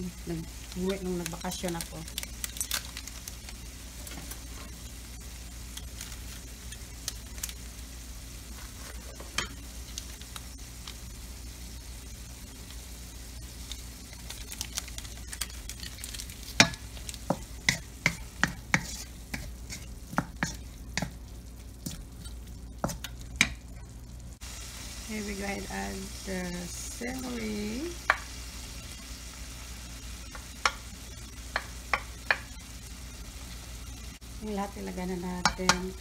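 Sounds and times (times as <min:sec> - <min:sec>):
meat sizzling in a wok: 0:00.0 - 0:36.0
steady low hum: 0:00.0 - 0:36.0
wooden spatula scraping a pan: 0:17.3 - 0:21.2.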